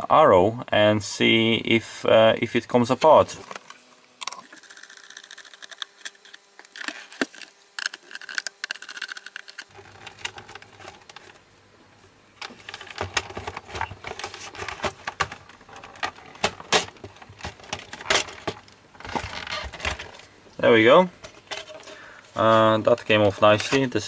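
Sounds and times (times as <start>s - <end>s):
plastic cover rattling: 4.3s - 11.4s.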